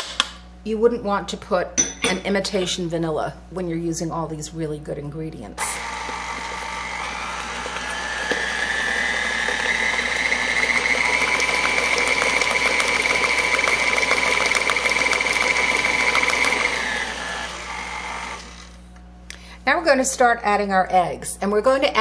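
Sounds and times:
stand mixer motor whine: 5.7s - 18.8s.

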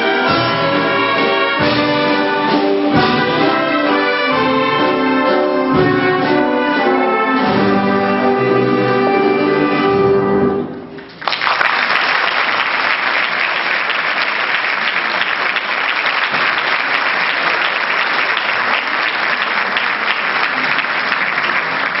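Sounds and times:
audience applause: 11.1s - 22.0s.

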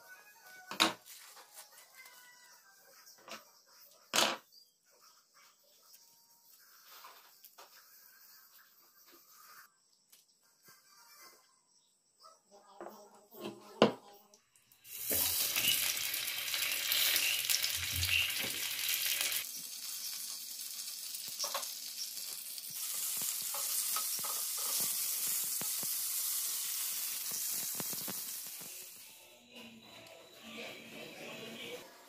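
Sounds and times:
sausages sizzling in oil: 14.6s - 29.3s.

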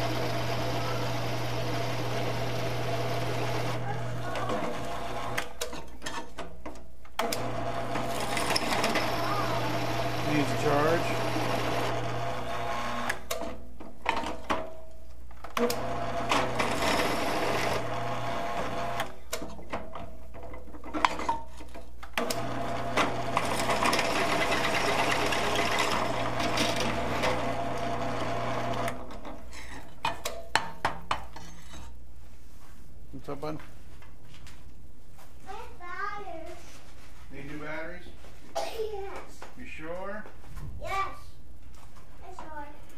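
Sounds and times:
mill spindle motor running: 0.0s - 5.5s, 7.2s - 13.2s, 15.6s - 19.1s, 22.2s - 29.1s
drill bit cutting metal: 7.4s - 13.2s, 15.8s - 19.0s, 22.3s - 28.9s.

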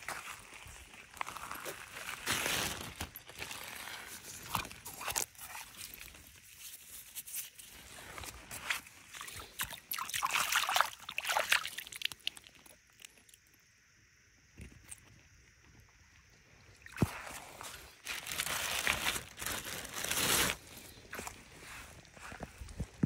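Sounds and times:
wet mud and gravel rustling: 0.0s - 13.6s, 16.7s - 23.0s
plastic bag rustling: 1.4s - 6.3s, 17.5s - 21.2s.

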